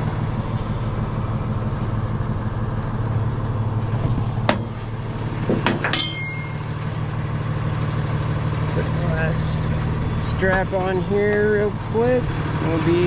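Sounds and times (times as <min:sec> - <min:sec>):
truck engine idling: 0:00.0 - 0:13.0
metal hook clinking: 0:05.6 - 0:06.6.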